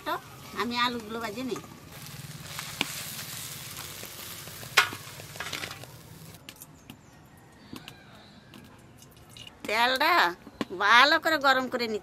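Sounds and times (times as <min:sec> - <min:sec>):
food sizzling in a wok: 0:00.0 - 0:06.4.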